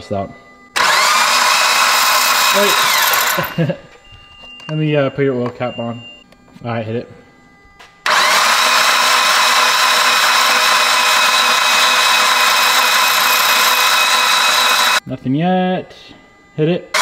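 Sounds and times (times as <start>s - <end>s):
starter motor cranking engine: 0.8s - 3.6s, 8.0s - 15.0s.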